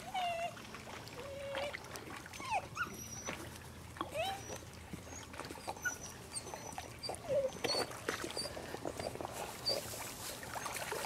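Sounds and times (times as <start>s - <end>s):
puppy whining: 0.0s - 0.6s, 2.4s - 8.6s, 9.6s - 9.9s
dog paddling splashes: 0.0s - 11.0s.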